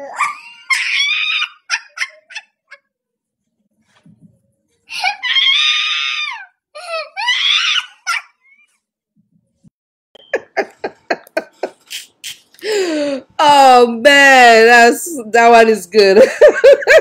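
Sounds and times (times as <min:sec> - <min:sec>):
child shrieking with laughter: 0:00.0 - 0:02.3, 0:04.9 - 0:08.6
adult laughing: 0:10.3 - 0:12.5, 0:16.2 - 0:17.0.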